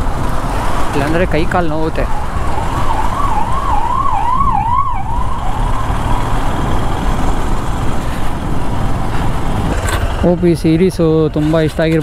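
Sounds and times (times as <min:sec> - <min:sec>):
emergency siren warbling: 0:01.6 - 0:07.4.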